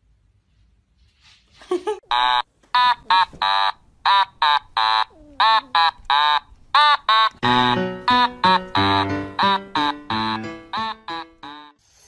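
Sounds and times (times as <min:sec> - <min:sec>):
kittens mewing: 0:04.6 - 0:06.4.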